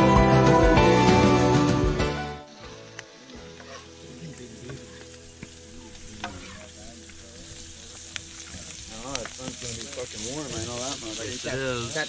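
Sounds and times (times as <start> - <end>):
eggs sizzling in a skillet: 2.4 - 12.0
spatula stirring in a pan: 3.5 - 6.8.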